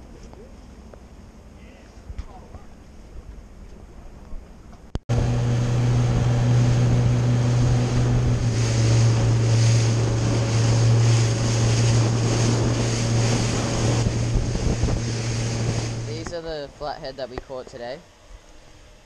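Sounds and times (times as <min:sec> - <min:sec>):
motorboat engine drone: 0:00.1 - 0:19.0
wind buffeting microphone: 0:05.1 - 0:16.7
water churning in wake: 0:05.1 - 0:17.7.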